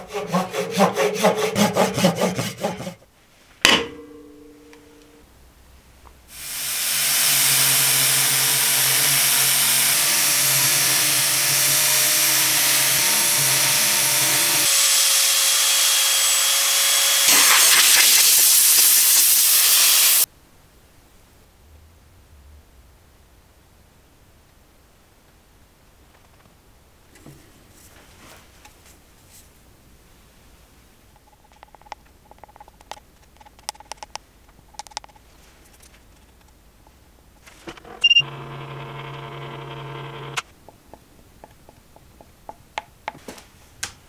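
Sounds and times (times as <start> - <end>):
single knock: 3.7 - 4.9
power sander sanding resin: 6.4 - 20.2.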